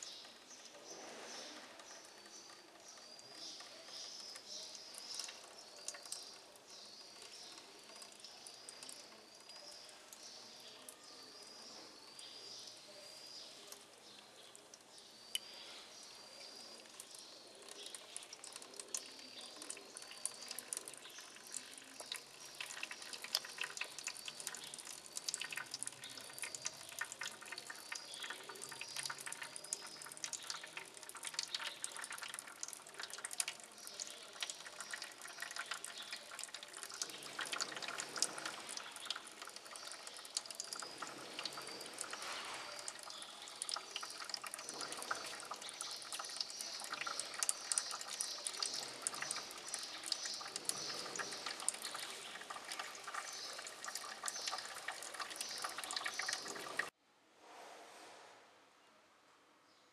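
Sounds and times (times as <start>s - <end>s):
liquid splashing through filter: 16.4s - 56.9s.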